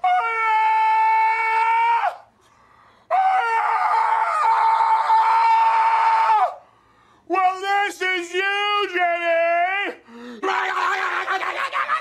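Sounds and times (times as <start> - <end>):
man screaming in falsetto: 0.0 - 2.2, 9.8 - 12.0
raspy scream: 0.0 - 2.3, 3.1 - 6.6, 9.7 - 12.0.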